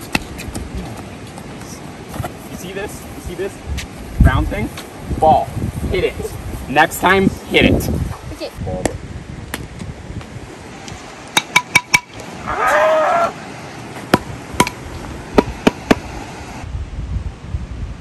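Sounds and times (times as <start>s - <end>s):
ball bouncing on concrete: 0.0s - 0.7s, 11.4s - 12.2s, 14.1s - 14.8s
pickleball striking paddle: 11.4s - 12.2s, 14.1s - 14.8s, 15.4s - 16.1s
person crying out: 12.4s - 13.4s.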